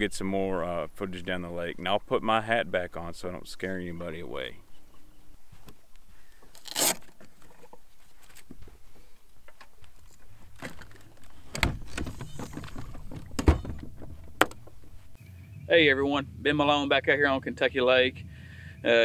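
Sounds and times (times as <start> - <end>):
knocks and clicks on boat deck: 10.6 - 15.0.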